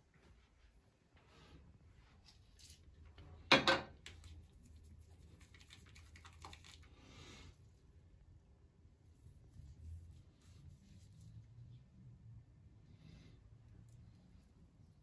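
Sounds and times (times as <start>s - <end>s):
hands rubbing shaving foam: 4.1s - 7.2s, 9.3s - 11.5s.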